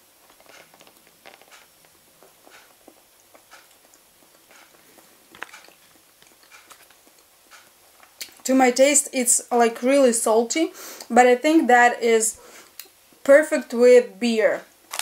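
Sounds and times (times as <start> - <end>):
chewing string cheese: 0.2 - 7.6.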